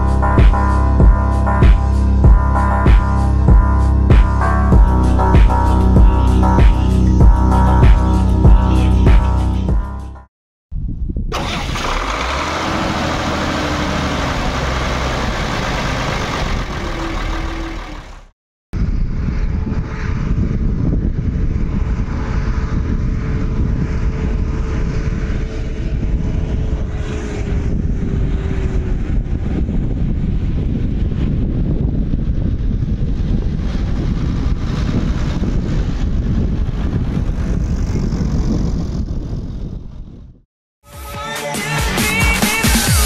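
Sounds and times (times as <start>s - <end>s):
tractor diesel engine: 11.3s - 18.3s.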